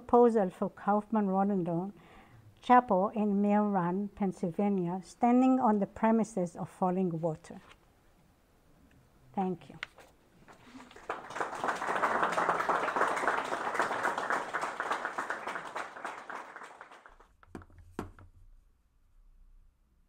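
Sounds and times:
audience applause: 10.5s - 17.3s.

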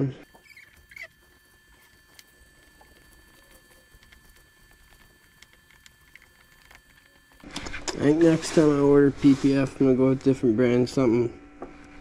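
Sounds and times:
faint high hum: 0.0s - 12.0s
fingertips rubbing film: 0.3s - 7.8s.

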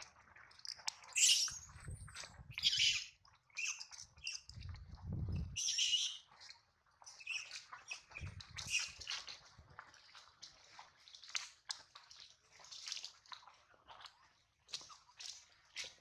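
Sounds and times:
animal chirps and squeals: 1.2s - 1.8s, 2.5s - 4.5s, 5.4s - 6.3s, 7.2s - 9.1s.

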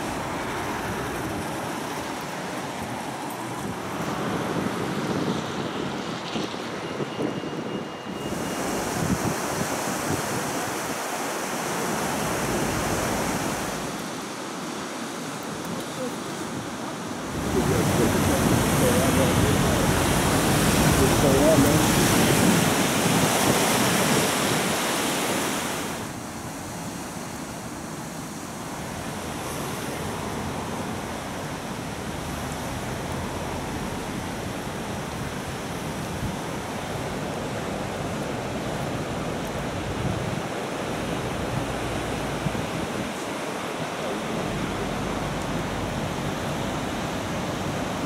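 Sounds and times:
river water rushing: 0.0s - 6.0s, 8.1s - 48.0s
wind on microphone: 0.0s - 14.1s, 15.6s - 26.2s.

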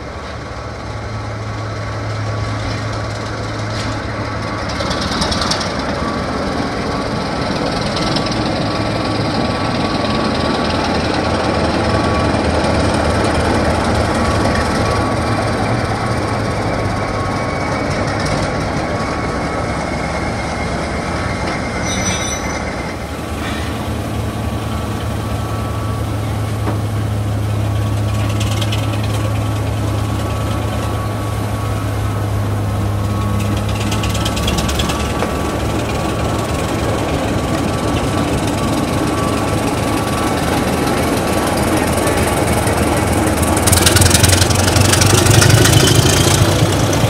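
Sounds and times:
diesel locomotive engine drone: 0.0s - 47.0s
thin steady whine: 0.0s - 47.0s.

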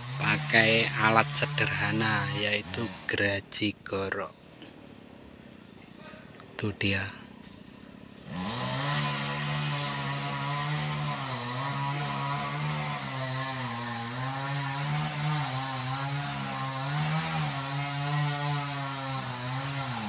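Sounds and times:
chainsaw engine running: 0.0s - 3.5s, 8.0s - 20.0s.

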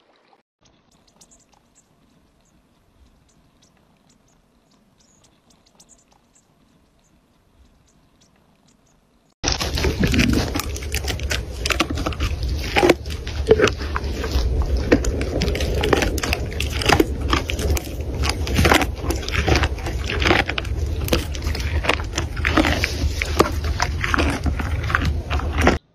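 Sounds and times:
faint ticks: 0.6s - 9.3s
camel chewing dry branch: 0.9s - 8.5s, 9.4s - 25.9s
steady low rumble: 1.0s - 25.9s.

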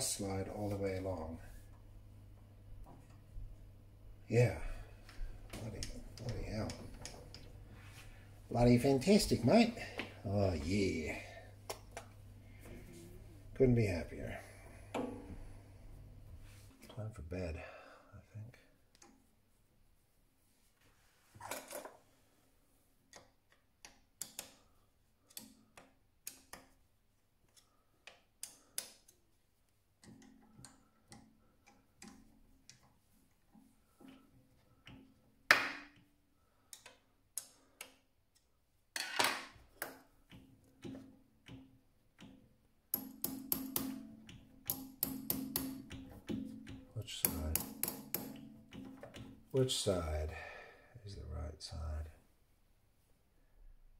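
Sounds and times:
metal taps and rattles: 39.0s - 49.5s.

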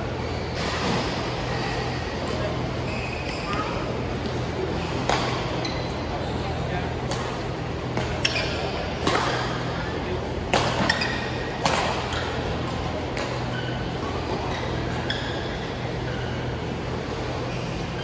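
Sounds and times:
steady low hum: 0.0s - 18.0s
shoes squeaking on court: 2.3s - 3.9s, 13.4s - 16.7s
rackets hitting shuttlecock: 5.0s - 5.6s, 7.0s - 9.6s, 10.5s - 15.0s.

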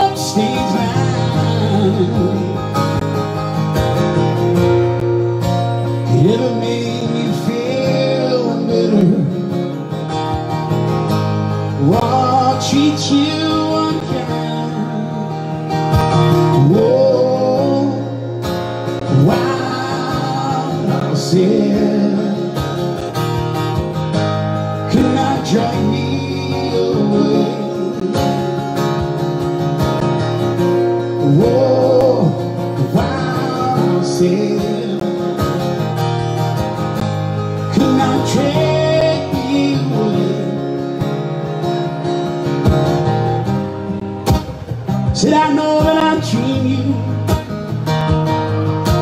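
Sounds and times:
man singing into a microphone: 0.0s - 3.0s, 5.9s - 9.8s, 11.8s - 23.1s, 24.6s - 28.8s, 31.0s - 35.7s, 37.6s - 41.2s, 45.1s - 47.6s
acoustic guitar strumming: 0.0s - 49.0s.

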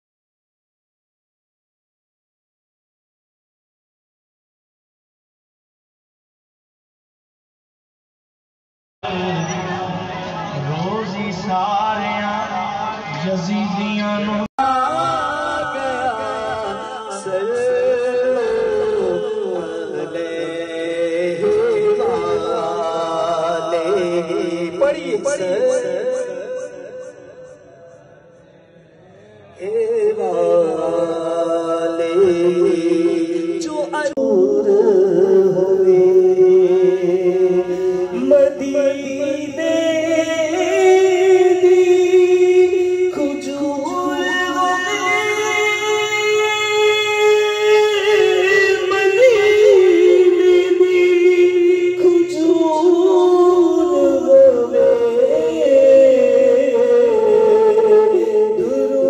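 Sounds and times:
man singing into microphone: 10.6s - 28.1s, 29.4s - 59.0s.

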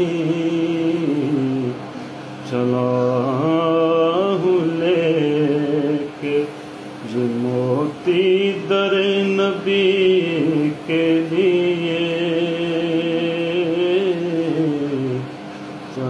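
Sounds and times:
man singing slowly: 0.0s - 15.3s.

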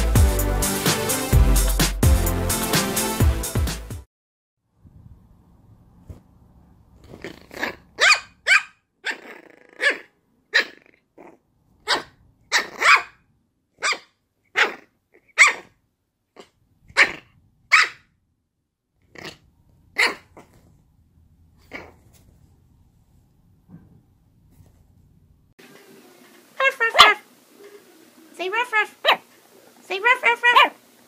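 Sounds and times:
puppy growling: 7.0s - 8.0s, 9.0s - 13.1s, 14.6s - 15.7s, 19.0s - 20.8s, 21.6s - 22.3s
puppy yapping: 7.1s - 13.2s, 13.8s - 15.8s, 16.4s - 18.0s, 20.0s - 20.6s, 21.6s - 22.0s, 26.6s - 27.2s, 28.8s - 29.3s, 30.1s - 30.8s.

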